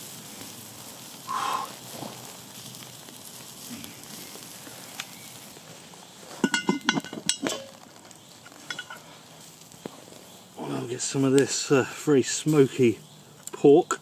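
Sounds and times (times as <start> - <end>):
faint steady hiss: 0.0 - 14.0
metal lid clanking: 6.4 - 7.7.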